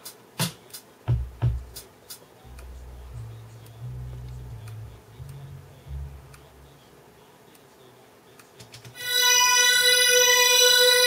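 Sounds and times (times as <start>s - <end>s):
faint low bass notes: 1.1s - 1.8s, 2.4s - 7.3s
loud held synthesizer note: 2.5s - 6.9s, 9.0s - 11.0s.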